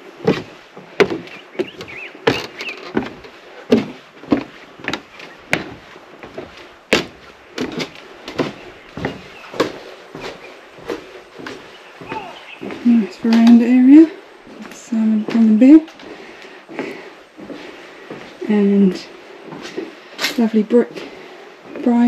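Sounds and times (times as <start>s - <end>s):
footsteps on wooden steps: 0.0s - 22.0s.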